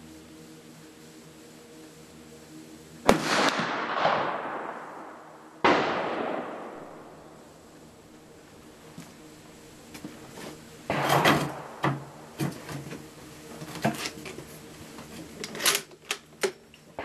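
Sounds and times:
rifle shots echoing: 3.1 - 7.2, 10.9 - 11.8.

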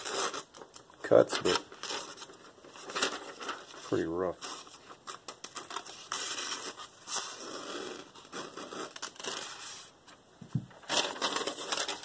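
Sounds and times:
paper rustling and tearing: 0.0 - 10.0, 10.8 - 12.0.

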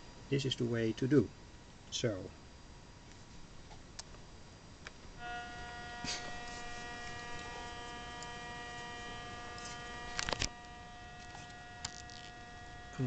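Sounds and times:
buzzing tone: 5.1 - 13.0.

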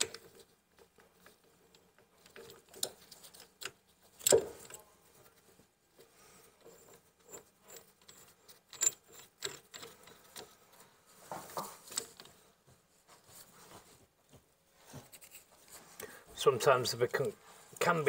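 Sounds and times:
metal tool clicks and rattles: 7.2 - 10.6.

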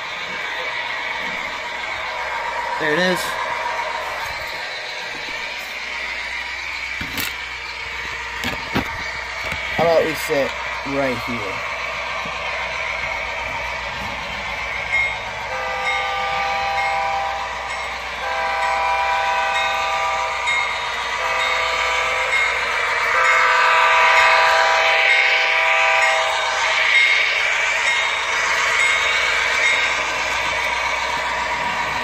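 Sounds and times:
diesel engine running sound: 0.0 - 19.4
model train horn through small speaker: 15.5 - 17.6, 18.2 - 20.4, 21.2 - 21.8, 23.2 - 26.4.

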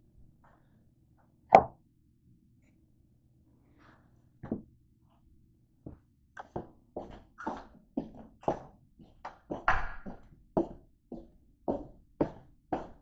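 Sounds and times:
footsteps on hard floor: 5.9 - 13.0.

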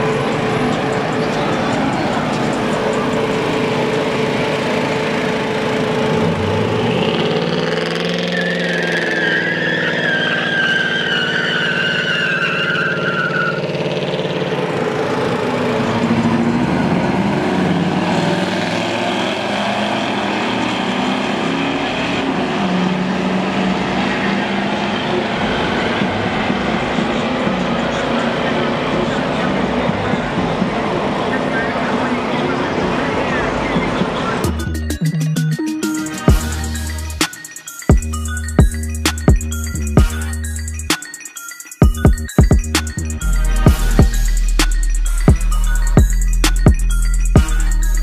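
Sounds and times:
high wavering squeal: 0.0 - 14.0, 34.5 - 48.0
engine revving: 0.0 - 41.0, 41.8 - 48.0.

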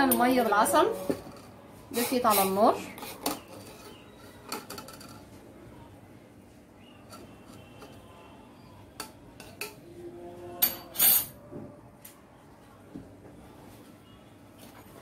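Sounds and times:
dishes and metal spoon clinking: 0.0 - 5.3, 7.0 - 8.0, 8.9 - 9.8, 10.6 - 11.4.

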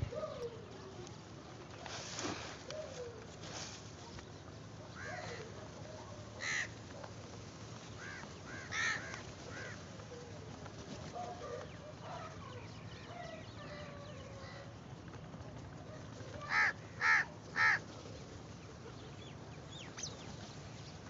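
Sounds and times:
crows cawing: 5.0 - 5.5, 6.4 - 6.8, 8.0 - 9.9, 16.4 - 17.9.

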